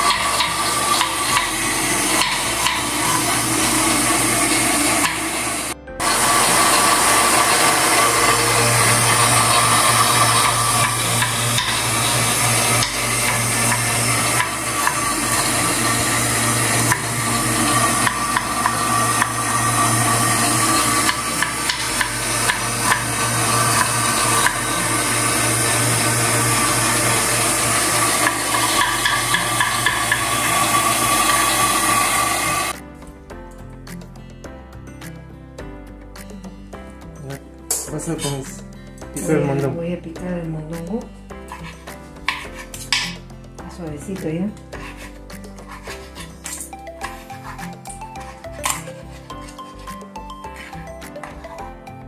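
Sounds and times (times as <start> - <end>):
steady motor hum: 0.0 - 32.7
knife chopping on wooden board: 21.0 - 23.1, 41.5 - 43.2, 44.6 - 51.4.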